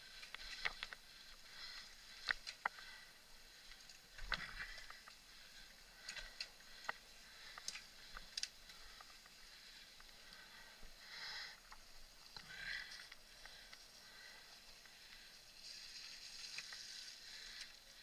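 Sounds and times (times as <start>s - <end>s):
bike clicking and rattling: 0.0s - 10.7s, 14.6s - 18.0s.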